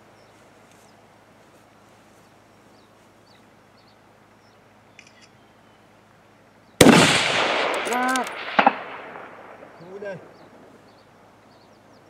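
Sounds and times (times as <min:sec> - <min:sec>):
faint bird chirps: 0:02.1 - 0:06.8
short clicks: 0:07.6 - 0:08.8.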